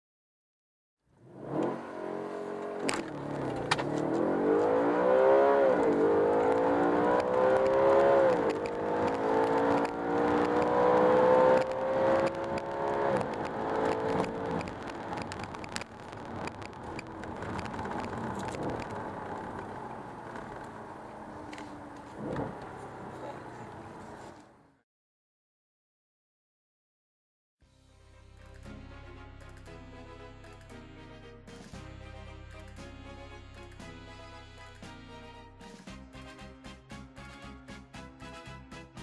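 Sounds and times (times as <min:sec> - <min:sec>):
car engine accelerating: 0:01.2 - 0:24.6.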